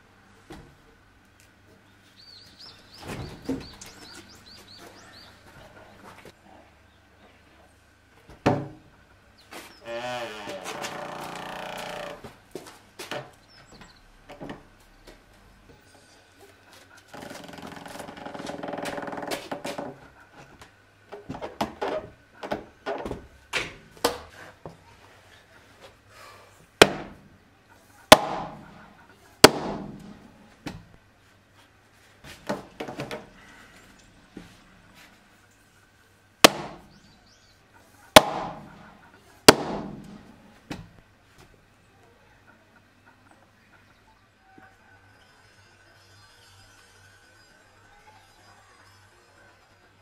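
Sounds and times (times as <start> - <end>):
hammer striking wooden block: 28.1 - 28.6, 29.4 - 30.1, 36.5 - 36.8, 38.2 - 38.7, 39.5 - 40.2.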